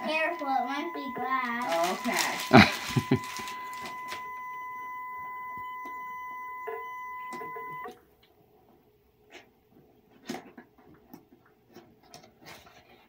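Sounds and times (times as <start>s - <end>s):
gift wrap rustling: 0.0s - 4.4s
steady electronic beep: 0.0s - 7.9s.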